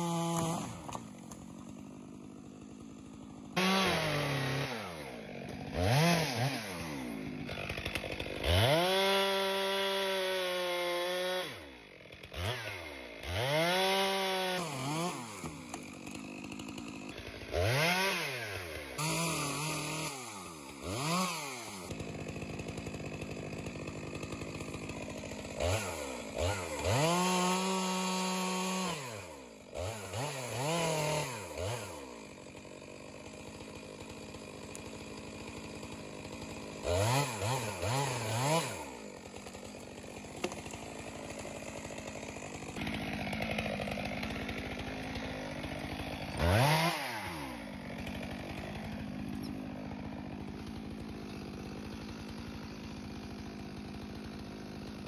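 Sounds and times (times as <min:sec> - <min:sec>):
chainsaw revving and idling: 0:00.0 - 0:55.0.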